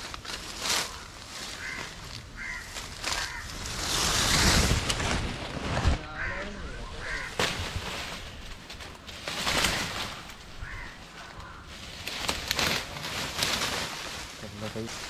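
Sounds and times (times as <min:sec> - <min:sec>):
leaves rustling and crackling: 0:00.0 - 0:15.0
faint bird calls: 0:00.6 - 0:03.7, 0:06.0 - 0:07.6, 0:09.4 - 0:12.3.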